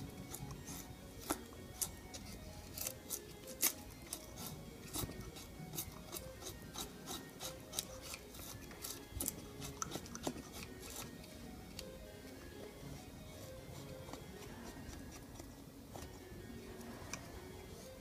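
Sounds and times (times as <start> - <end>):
knife scraping wood: 0.0 - 11.9.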